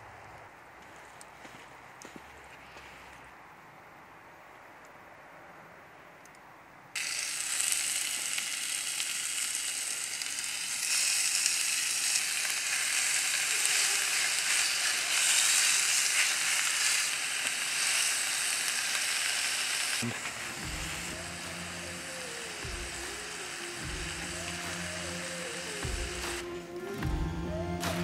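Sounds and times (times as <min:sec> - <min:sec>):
meat sizzling in a skillet: 0:07.0 - 0:26.4.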